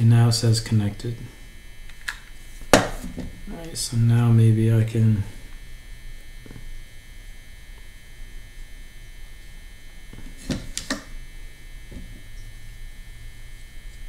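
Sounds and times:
electrical hum: 0:00.0 - 0:14.0.

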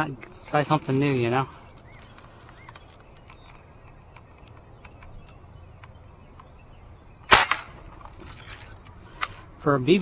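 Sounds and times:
outdoor background: 0:00.0 - 0:10.0
air rifle shot pop: 0:07.3 - 0:07.7.

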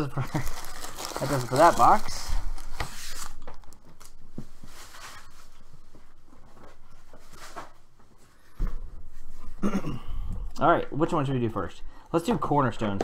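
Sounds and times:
rustling on a tabletop: 0:00.7 - 0:09.6.

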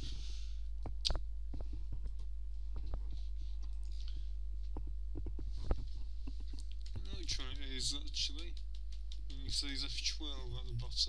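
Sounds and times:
low electrical hum: 0:00.0 - 0:11.0
computer keyboard clicks: 0:06.6 - 0:09.4.

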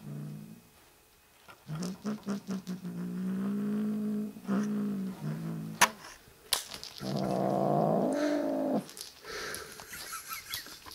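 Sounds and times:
kitten growling: 0:01.6 - 0:05.8, 0:07.0 - 0:08.9.

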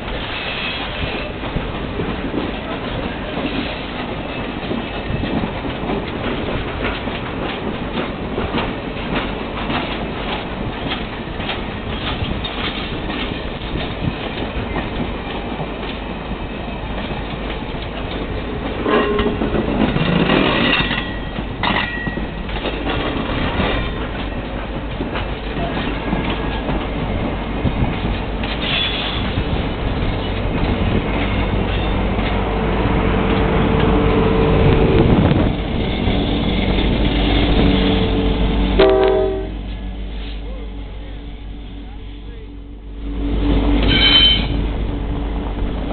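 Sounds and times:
train wheels clicking over rail joints: 0:00.0 - 0:40.6
diesel locomotive engine: 0:00.0 - 0:45.9
train rumble: 0:00.0 - 0:45.9
high squeal: 0:43.8 - 0:44.6.

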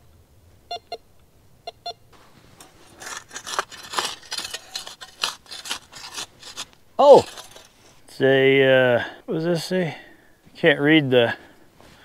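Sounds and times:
scraping and rustling in dirt: 0:02.1 - 0:08.5.

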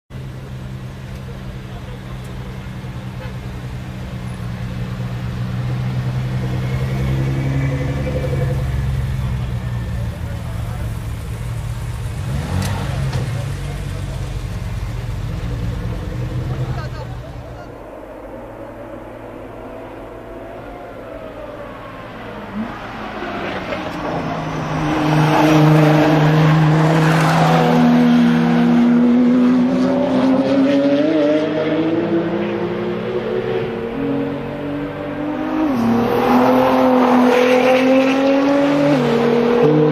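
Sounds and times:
car exhaust drone: 0:00.1 - 0:22.8.

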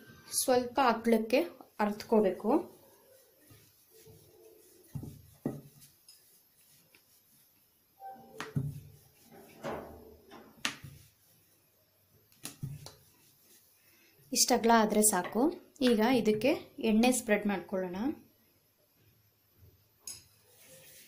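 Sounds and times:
rolling pin rubbing dough: 0:00.8 - 0:13.8, 0:20.4 - 0:21.0
light knocks of rolling pin: 0:04.8 - 0:05.8.

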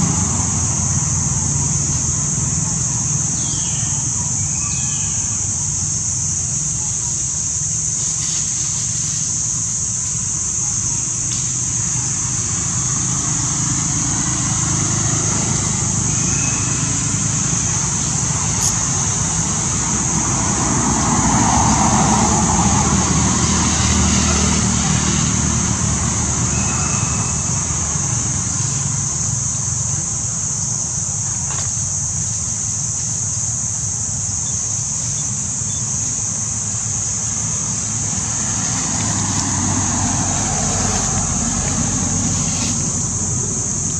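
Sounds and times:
vehicle passing: 0:00.0 - 0:03.4, 0:11.9 - 0:30.0, 0:36.4 - 0:43.9
traffic engine rumble: 0:00.0 - 0:43.9.

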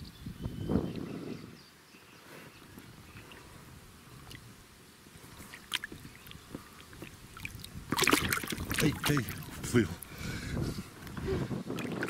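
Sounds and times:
water splashing and dripping: 0:05.3 - 0:10.1, 0:11.0 - 0:12.0.

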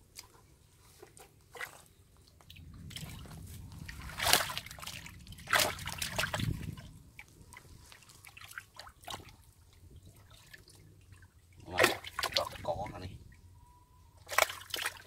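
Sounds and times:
water trickling: 0:01.6 - 0:15.0
hand splashing in water: 0:11.7 - 0:12.7.

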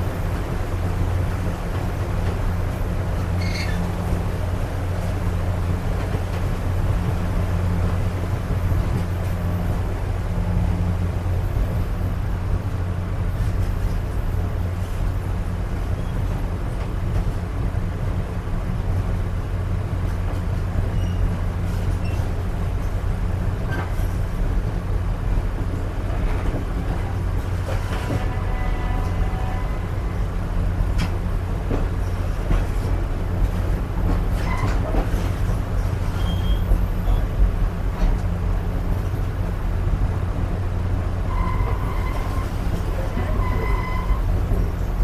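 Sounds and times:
train coach rumble: 0:00.0 - 0:45.0
faint high squeaks: 0:03.4 - 0:03.9, 0:36.1 - 0:37.3, 0:41.3 - 0:42.6, 0:43.2 - 0:44.2.

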